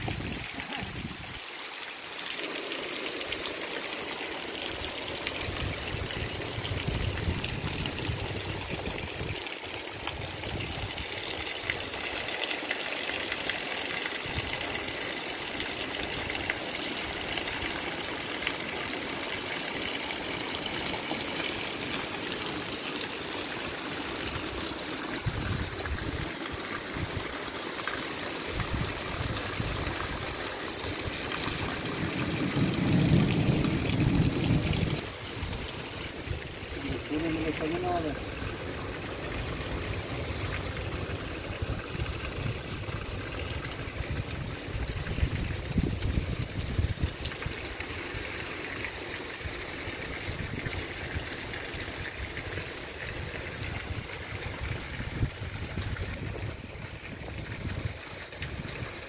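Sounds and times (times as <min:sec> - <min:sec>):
heavy rain on wet ground: 0:00.0 - 0:59.0.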